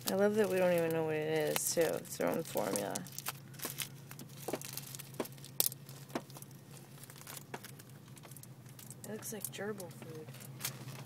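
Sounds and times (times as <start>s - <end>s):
low hum: 0.0s - 11.0s
plastic bag crinkling: 0.0s - 11.0s.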